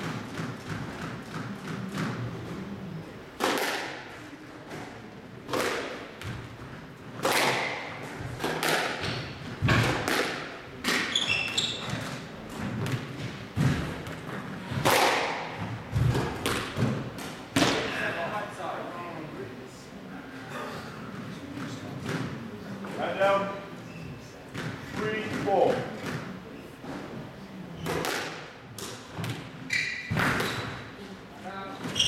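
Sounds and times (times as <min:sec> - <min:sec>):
squash ball hits: 0:03.4 - 0:04.1, 0:05.5 - 0:06.5, 0:07.2 - 0:18.0, 0:27.8 - 0:30.9
shoes squeaking on court floor: 0:10.9 - 0:14.8, 0:23.8 - 0:28.1, 0:29.2 - 0:31.0, 0:31.8 - 0:32.0.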